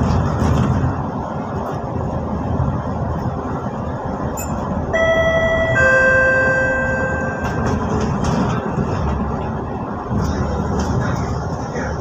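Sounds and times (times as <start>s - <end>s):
vehicle road and engine noise: 0.0s - 12.0s
two-note electronic chime: 4.4s - 7.8s.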